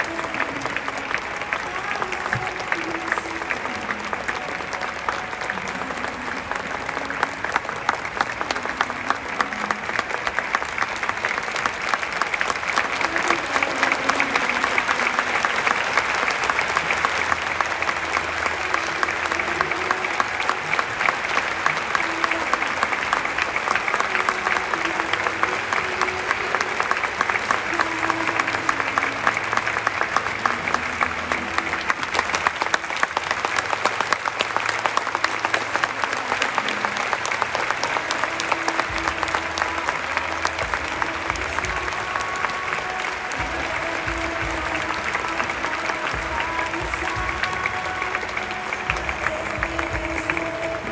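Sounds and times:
crowd applauding: 0:00.0 - 0:50.9.

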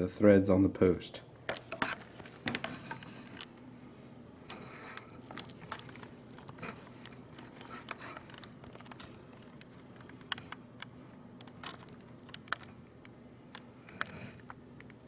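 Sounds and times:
camera handling clicks and rustles: 0:01.5 - 0:03.5, 0:04.9 - 0:12.8.

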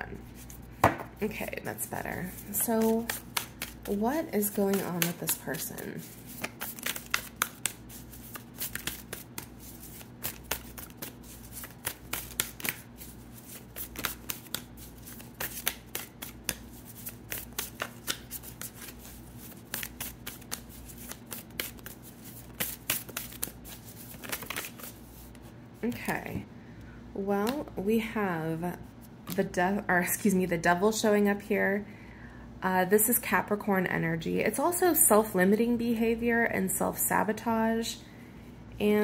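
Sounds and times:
steady low hum: 0:00.0 - 0:39.0
cards being shuffled: 0:02.3 - 0:26.0.

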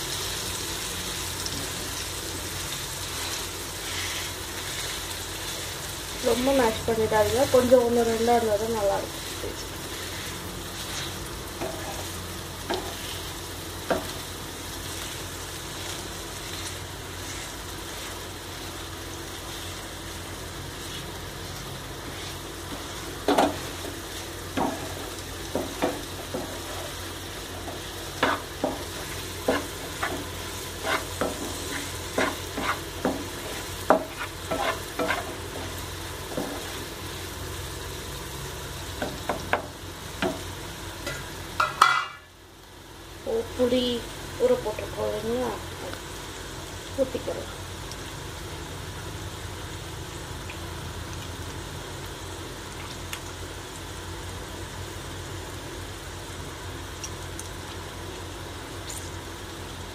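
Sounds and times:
oil sizzling: 0:00.0 - 0:59.9
spatula scraping a pan: 0:03.1 - 0:06.4, 0:09.0 - 0:12.1, 0:16.4 - 0:18.3, 0:22.0 - 0:36.8.

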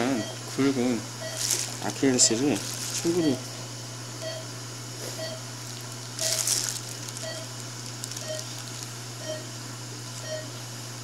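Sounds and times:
patient monitor beeping: 0:00.0 - 0:02.3, 0:03.0 - 0:03.6, 0:04.2 - 0:04.5, 0:05.2 - 0:05.5, 0:06.2 - 0:06.6, 0:07.2 - 0:08.6, 0:09.2 - 0:09.5, 0:10.2 - 0:10.6
steady low hum: 0:00.0 - 0:11.0.

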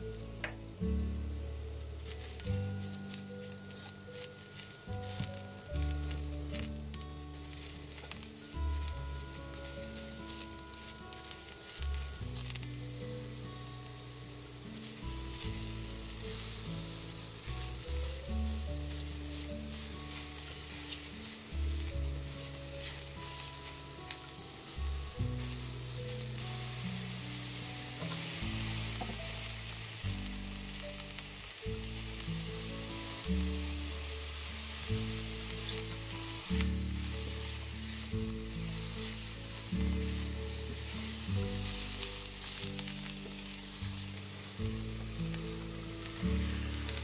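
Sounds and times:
low steady background music: 0:00.0 - 0:47.0
mushrooms sizzling in a frying pan: 0:00.0 - 0:47.0
spatula stirring in pan: 0:14.0 - 0:30.0, 0:31.8 - 0:47.0.

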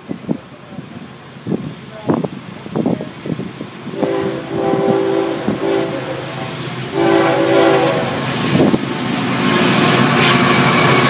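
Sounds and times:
train engine and wheel rumble: 0:00.0 - 0:11.0
locomotive air horn blasts: 0:03.9 - 0:08.3.

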